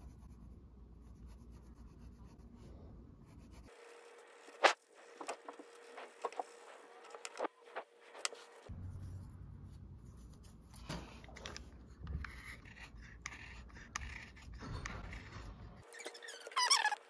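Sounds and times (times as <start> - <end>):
pencil scratching on wood: 11.5 - 17.0.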